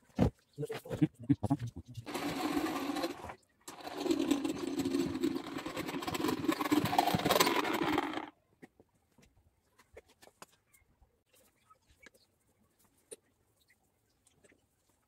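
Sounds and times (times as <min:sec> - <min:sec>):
rapid mechanical clatter: 0:02.0 - 0:08.3.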